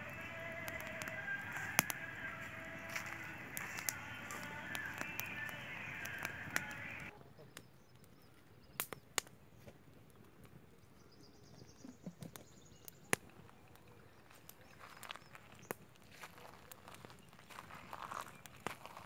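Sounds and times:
background music: 0:00.0 - 0:07.1
wood fire crackling: 0:00.0 - 0:07.7, 0:12.8 - 0:19.0.

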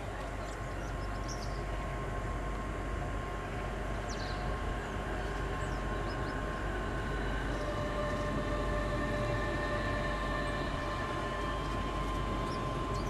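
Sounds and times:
electric train rumbling: 0:00.0 - 0:13.0
thin whining tones: 0:03.9 - 0:13.0.

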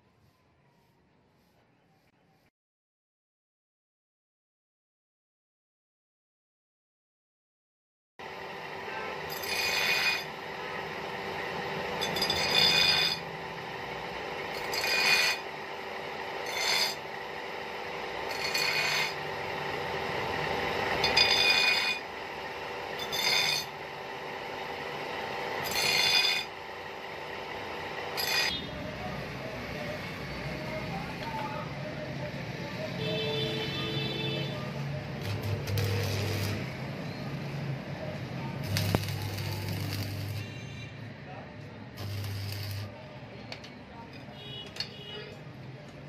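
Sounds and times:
grinding wheel humming: 0:08.2 - 0:40.8, 0:41.9 - 0:43.0
knife blade rasping on grinder: 0:09.2 - 0:10.4, 0:12.0 - 0:13.3, 0:14.5 - 0:15.5, 0:16.4 - 0:17.1, 0:18.1 - 0:19.3, 0:20.8 - 0:22.1, 0:23.0 - 0:23.8, 0:25.6 - 0:26.6, 0:28.1 - 0:28.6.

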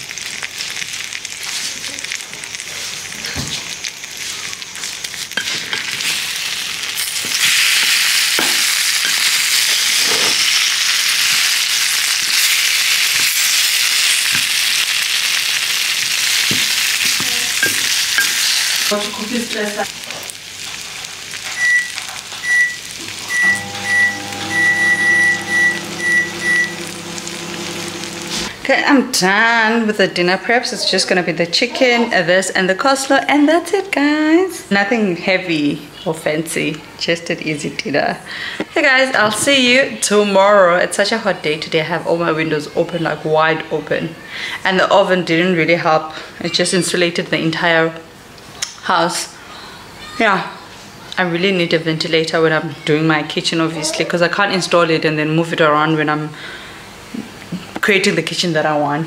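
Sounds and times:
vegetables sizzling: 0:00.0 - 0:31.7.

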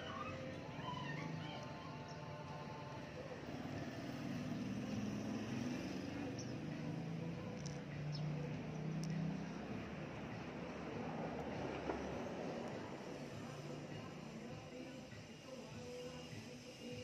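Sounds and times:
faint ticks: 0:09.0 - 0:09.2.

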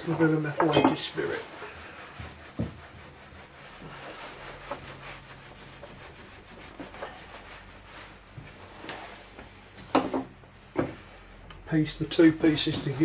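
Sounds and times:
cloth scrubbing steel bar: 0:00.0 - 0:09.2.

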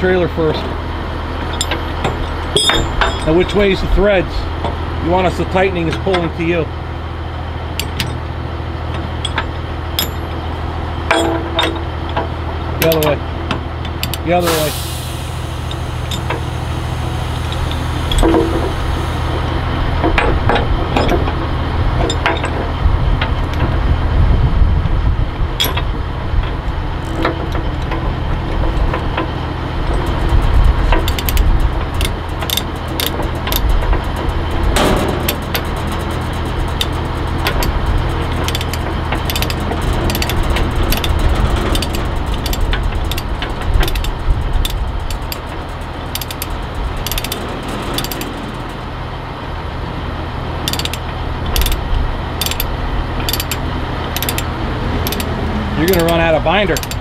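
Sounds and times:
low engine hum: 0:00.0 - 0:57.0
metal knocks and chain clanks: 0:01.4 - 0:03.7, 0:07.8 - 0:08.3, 0:09.2 - 0:10.5, 0:11.1 - 0:13.2, 0:20.0 - 0:21.4, 0:22.0 - 0:23.7, 0:25.6 - 0:26.0, 0:27.0 - 0:48.9, 0:50.6 - 0:51.8, 0:52.4 - 0:57.0
ratchet clicking: 0:07.8 - 0:08.2, 0:09.2 - 0:10.3, 0:13.9 - 0:14.7, 0:17.4 - 0:18.9, 0:29.8 - 0:48.8, 0:50.6 - 0:57.0.

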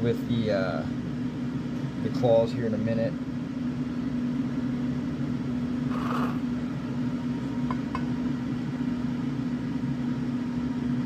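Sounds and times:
machine hum: 0:03.1 - 0:11.0.

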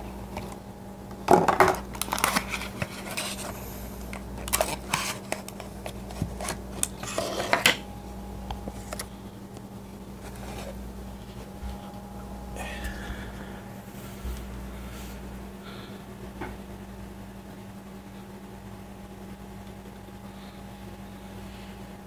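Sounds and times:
plastic packaging crackling: 0:01.5 - 0:07.8.

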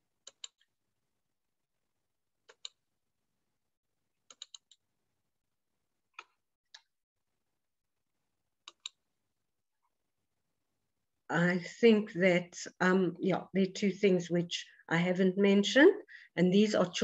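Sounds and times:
computer mouse clicking: 0:00.2 - 0:00.7, 0:02.4 - 0:02.8, 0:04.2 - 0:04.8, 0:08.6 - 0:09.0.

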